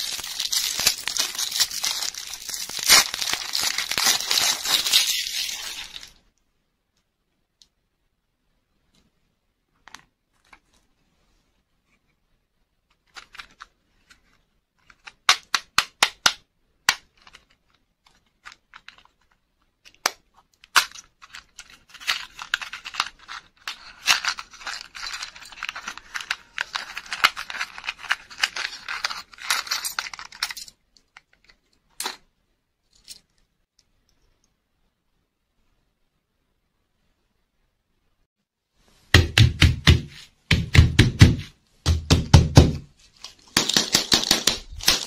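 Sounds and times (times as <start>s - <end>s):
packaging crinkling and tearing: 0.0s - 6.2s, 20.7s - 30.4s, 44.6s - 45.0s.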